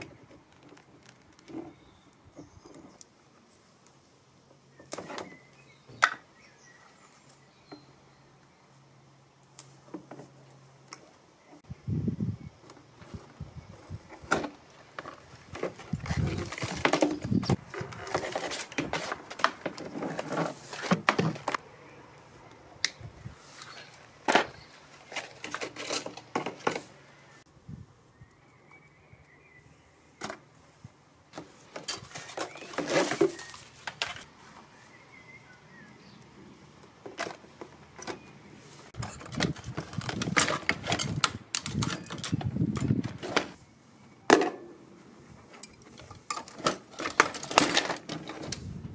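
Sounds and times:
parts rattling in plastic tub: 14.2 - 21.6, 24.3 - 26.9, 39.0 - 43.6, 46.0 - 48.7.

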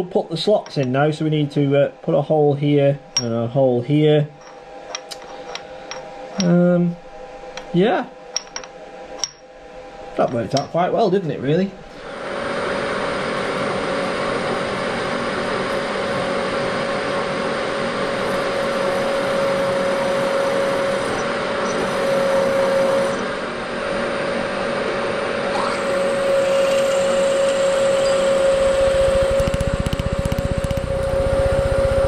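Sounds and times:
milling machine motor whine: 11.9 - 32.0
drill cutting metal: 18.1 - 23.3, 25.5 - 32.0.

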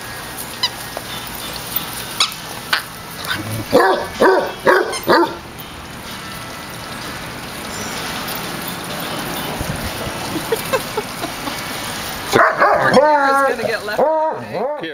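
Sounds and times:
dog barking: 3.3 - 5.4, 12.3 - 13.2.

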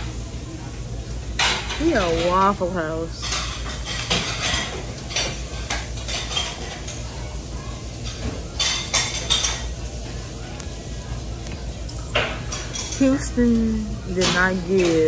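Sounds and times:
dishes and cutlery clattering: 1.2 - 15.0.

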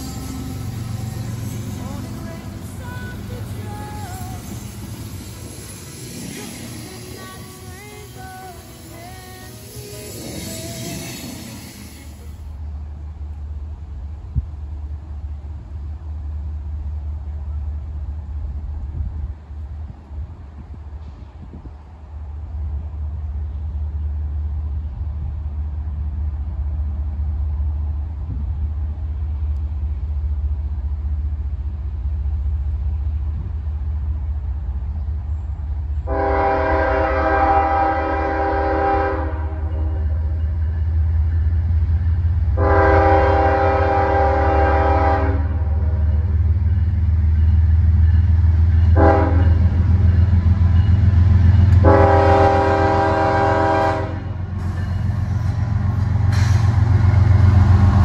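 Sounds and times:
diesel locomotive engine rumble: 0.0 - 58.0
train air horn blasts: 36.1 - 40.2, 42.6 - 46.0, 48.9 - 49.7, 51.8 - 54.4.

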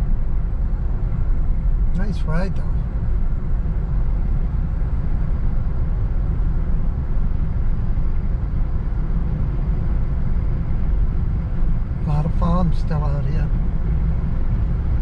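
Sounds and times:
engine rumble inside car: 0.0 - 15.0
road noise: 0.0 - 15.0.

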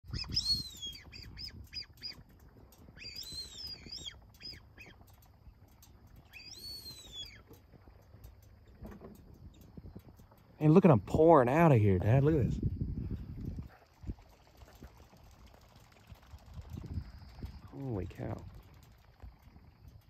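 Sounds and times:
birds squealing: 0.1 - 2.3, 2.9 - 5.0, 6.2 - 7.5.

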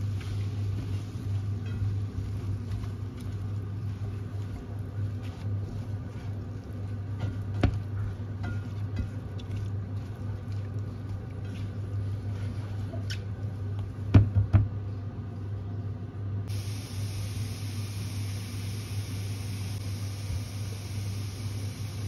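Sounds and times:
spatula stirring in frying pan: 0.0 - 13.8
low steady hum: 0.0 - 22.0
steady hiss: 16.5 - 22.0.

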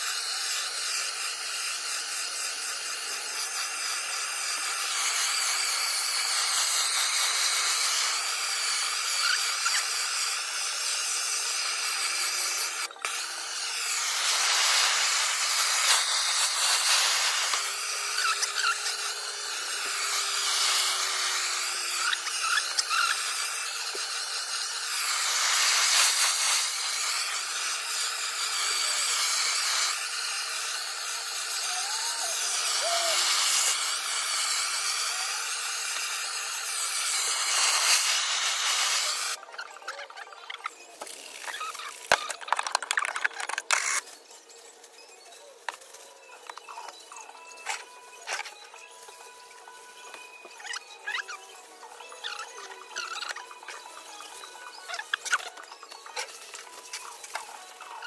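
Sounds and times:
gas blowtorch hissing: 0.0 - 39.4.

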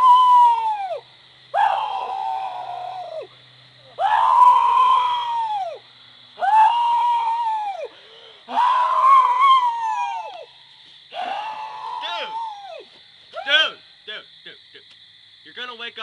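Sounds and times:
man howling like a wolf: 1.6 - 3.3, 4.0 - 5.8, 6.4 - 7.9, 8.5 - 10.5, 11.1 - 12.9.

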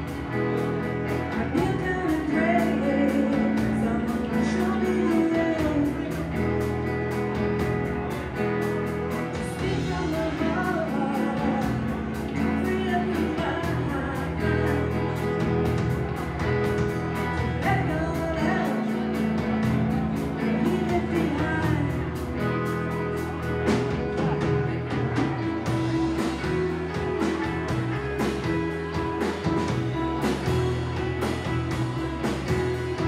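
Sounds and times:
bass guitar: 0.0 - 33.0
drum kit with cymbals: 0.0 - 33.0
electric guitars: 0.0 - 33.0
woman singing: 1.3 - 6.4, 9.3 - 15.7, 17.4 - 19.7, 20.4 - 22.2.

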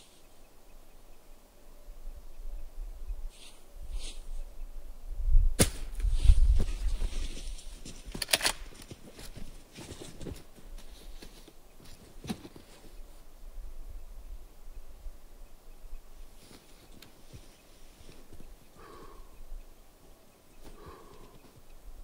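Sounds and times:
light ticks and rustling: 7.0 - 13.2, 16.3 - 18.8
rifle gear clicks and knocks: 7.8 - 10.5.

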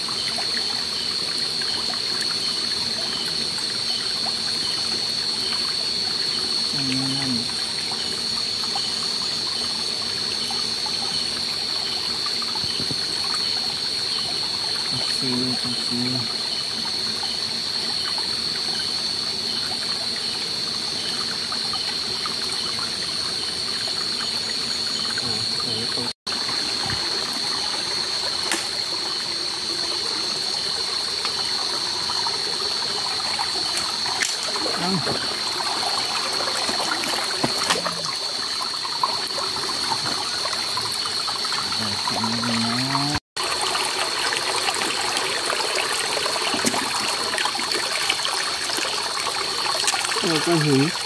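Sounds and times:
stream trickling over rocks: 0.0 - 51.0
small clicks and splashes: 28.2 - 28.9, 33.3 - 43.2, 46.4 - 48.3, 49.4 - 51.0.

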